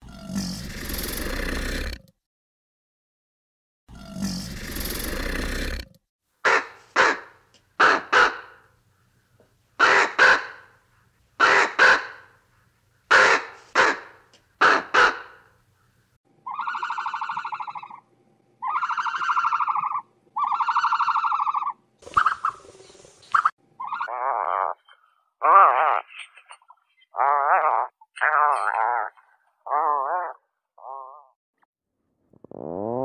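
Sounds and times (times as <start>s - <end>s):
raven buzzing calls: 9.8s - 10.7s, 11.4s - 12.3s, 13.1s - 15.4s, 16.4s - 18.0s, 18.6s - 22.6s, 23.4s - 26.2s.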